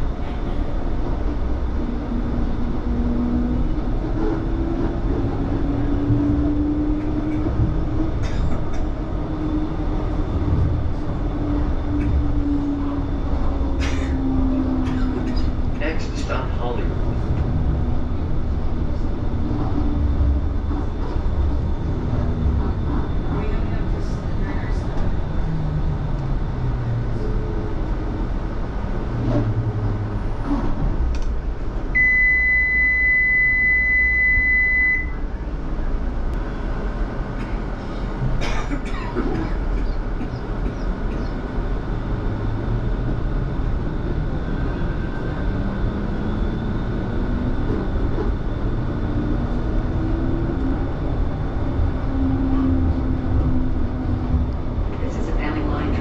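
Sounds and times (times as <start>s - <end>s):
tram rumble with motor whine: 0.0s - 56.0s
electronic beep: 32.0s - 35.2s.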